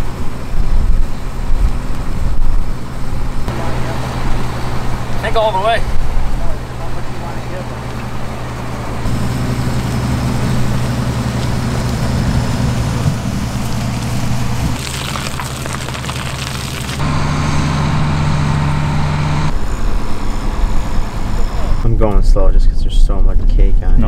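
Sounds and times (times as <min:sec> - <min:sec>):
crackling noise: 0:00.0 - 0:17.0
vehicle engines idling: 0:00.0 - 0:23.7.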